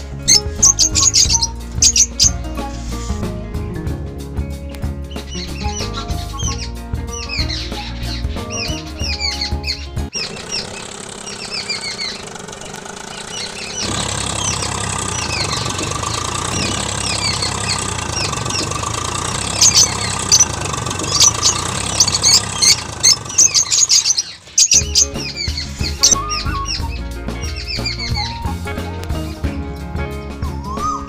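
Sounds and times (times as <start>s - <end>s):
birds chirping: 0.0s - 3.2s, 5.1s - 28.8s
engine running: 0.0s - 3.5s, 10.1s - 29.1s.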